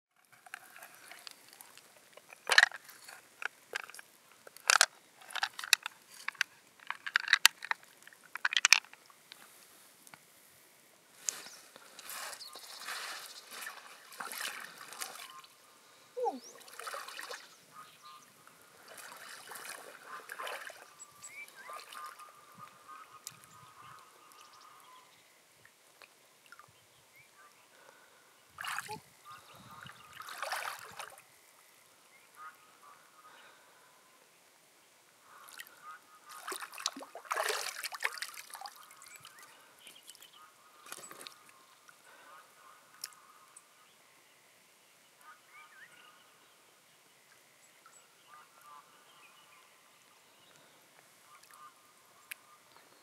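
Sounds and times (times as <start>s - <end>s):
water splashing and sloshing: 0.2s - 9.2s, 11.2s - 15.6s, 16.2s - 17.6s, 18.6s - 22.2s, 28.6s - 29.0s, 29.8s - 31.2s, 36.3s - 39.5s.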